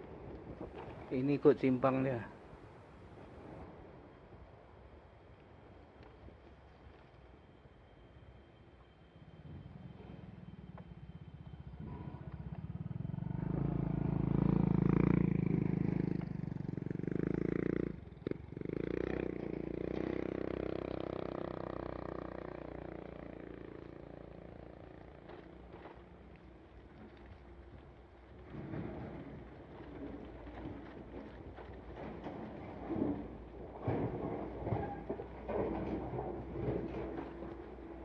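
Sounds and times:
motorcycle engine passing by: 0:09.4 - 0:25.9.

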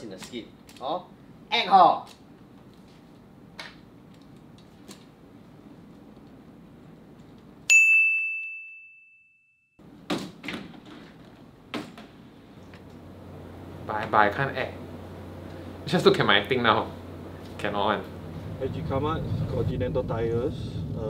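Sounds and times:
bright bell-like ding: 0:07.7 - 0:09.7.

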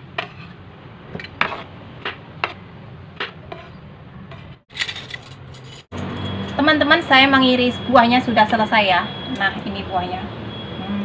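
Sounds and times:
knife scrape: 0:00.0 - 0:00.6, 0:01.2 - 0:01.7, 0:03.5 - 0:05.3.

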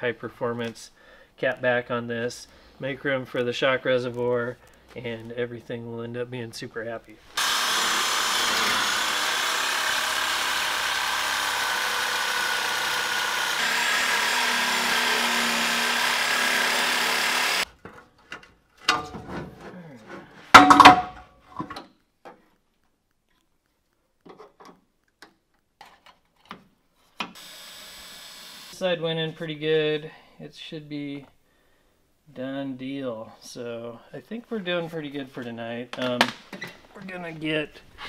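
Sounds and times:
reciprocating saw cutting metal pipe: 0:07.4 - 0:17.6.

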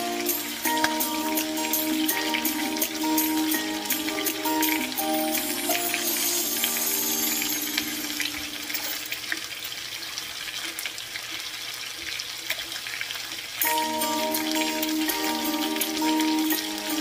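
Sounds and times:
background music: 0:00.0 - 0:09.1, 0:13.6 - 0:17.0
chicken frying in oil: 0:00.0 - 0:17.0.

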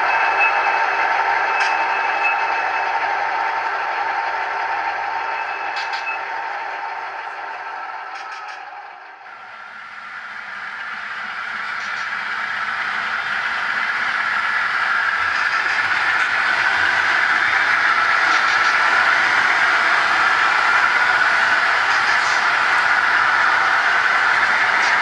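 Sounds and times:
model train rolling: 0:00.0 - 0:25.0.

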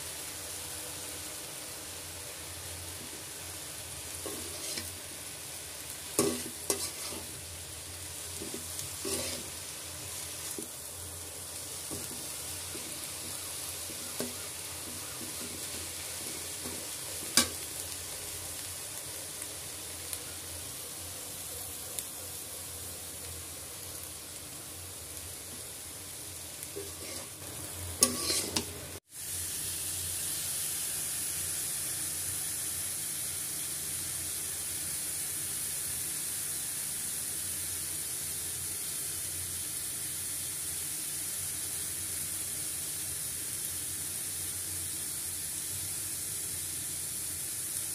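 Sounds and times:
greens sizzling in a wok: 0:00.0 - 0:47.9
spatula scraping wok: 0:04.0 - 0:05.4, 0:06.0 - 0:10.8, 0:11.5 - 0:17.7, 0:26.6 - 0:29.0.

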